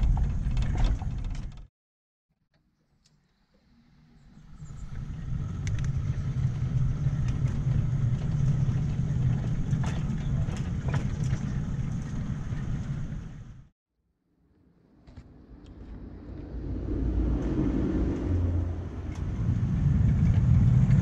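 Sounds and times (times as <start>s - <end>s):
miniature locomotive drone: 3.0s - 13.7s, 15.1s - 21.0s.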